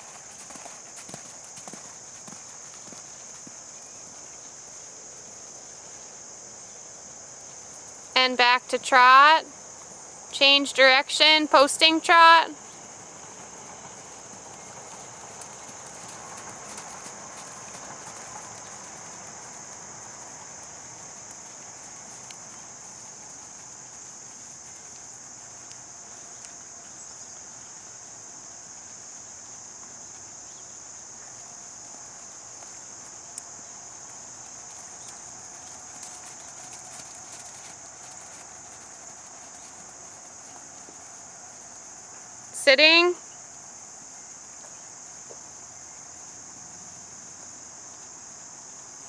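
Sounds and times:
horse hoofbeats on sand: 0:00.0 - 0:04.3, 0:12.6 - 0:27.5, 0:31.2 - 0:42.2
insects chirring: 0:00.0 - 0:49.0.

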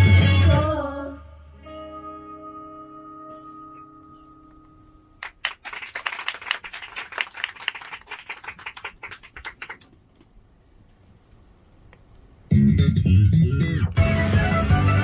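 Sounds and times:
audience clapping: 0:05.2 - 0:10.2.

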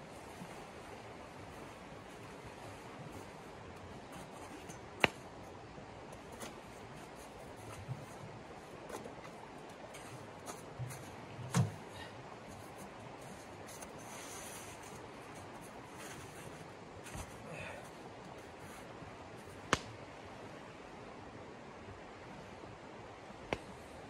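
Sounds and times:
dull thump: 0:11.5 - 0:11.8.

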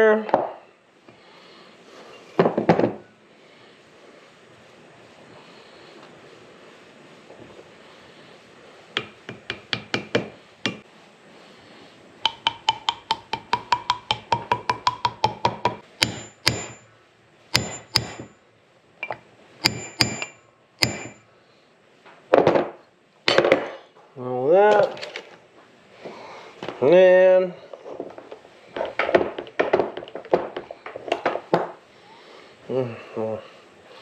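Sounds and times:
hammer striking metal drift: 0:12.3 - 0:16.9, 0:17.6 - 0:18.3, 0:19.6 - 0:21.2.

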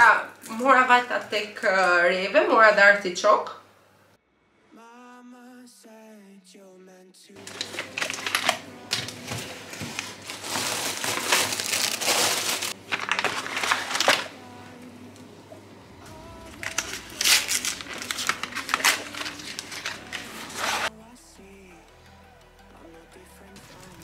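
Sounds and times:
plastic packaging crinkling: 0:07.4 - 0:14.5, 0:16.4 - 0:20.9.

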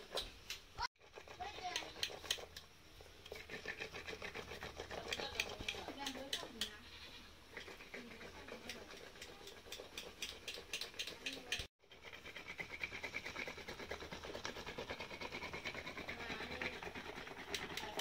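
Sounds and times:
wooden stick clattering in wok: 0:08.6 - 0:11.7.

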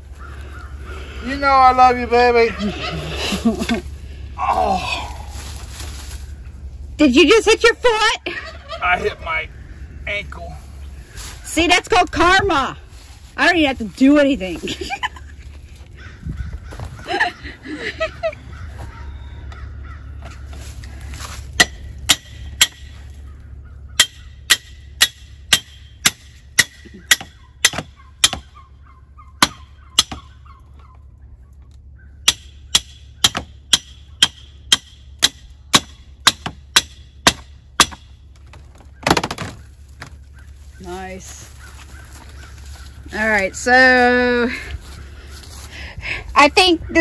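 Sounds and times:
rustling noise: 0:05.2 - 0:07.0, 0:10.6 - 0:17.1
poultry call: 0:15.9 - 0:20.8, 0:26.8 - 0:32.2, 0:39.6 - 0:45.8
hammer striking steel stake: 0:21.6 - 0:22.9, 0:24.0 - 0:28.5, 0:29.4 - 0:30.2, 0:32.2 - 0:38.1.

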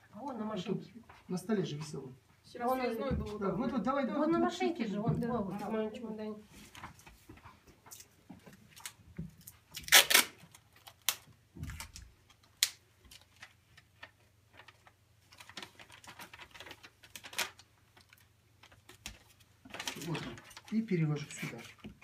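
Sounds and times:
paper crinkling and tapping: 0:10.4 - 0:22.0.

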